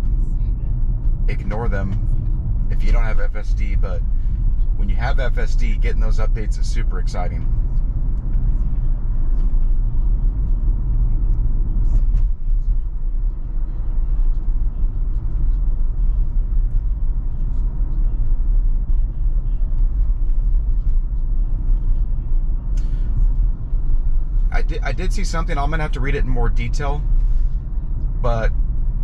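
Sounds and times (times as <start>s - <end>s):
road and tyre rumble inside car: 0.0s - 29.0s.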